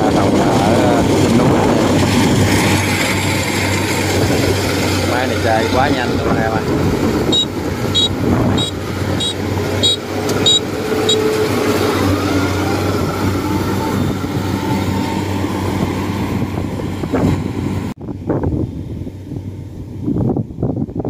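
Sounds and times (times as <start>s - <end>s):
combine harvester diesel hum: 0.0s - 20.6s
wind gusts on microphone: 0.0s - 21.0s
short high squeak: 7.3s - 12.4s.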